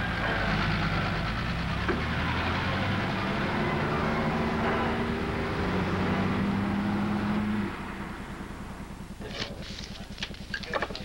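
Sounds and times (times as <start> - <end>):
vehicle engine running: 0.0 - 11.0
faint rapid low pulsing: 4.4 - 11.0.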